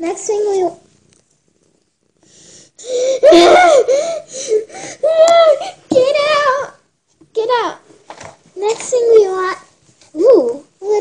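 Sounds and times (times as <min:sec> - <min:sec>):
girl laughing and squealing: 0:03.0 - 0:05.8.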